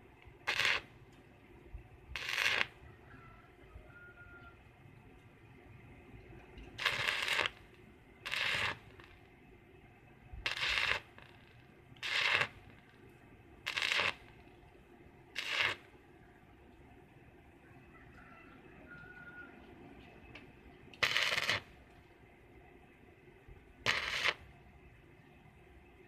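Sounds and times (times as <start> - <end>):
arc welding crackle: 0.0 - 2.8, 6.2 - 9.6, 10.2 - 16.8, 20.3 - 22.2, 23.8 - 24.6.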